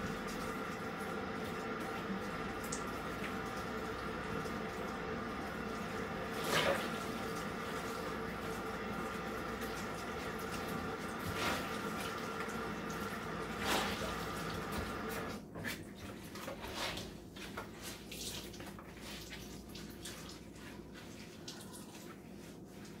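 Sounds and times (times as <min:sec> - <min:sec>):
water dripping: 0:00.0 - 0:06.0.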